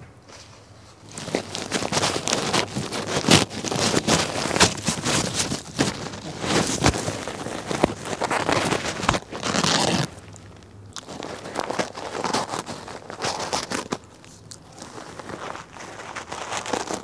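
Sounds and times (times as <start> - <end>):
dog tearing and chewing tissue: 1.0 - 17.0.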